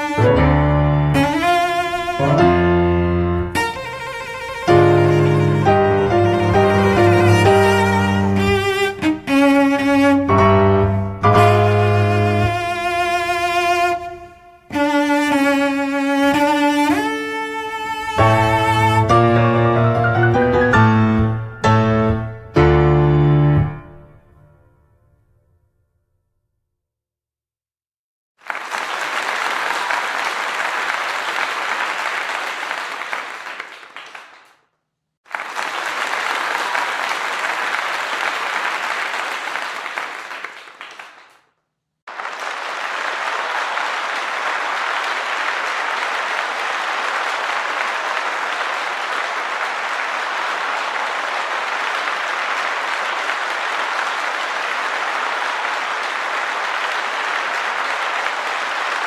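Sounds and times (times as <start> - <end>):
audience applause: 1.1 - 14.9, 17.8 - 21.4, 28.4 - 34.6, 35.2 - 41.4, 42.1 - 59.0.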